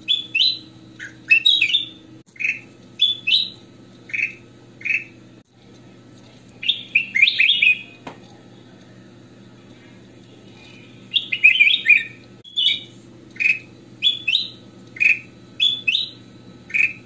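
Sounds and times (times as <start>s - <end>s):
bird singing: 0.0s - 5.2s, 6.6s - 8.0s, 10.6s - 17.0s.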